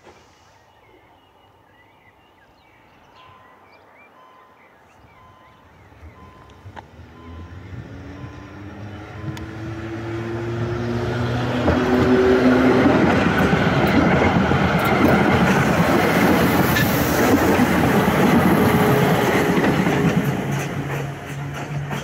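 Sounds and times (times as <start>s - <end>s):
tram wheels rumbling on rails: 5.4s - 22.0s.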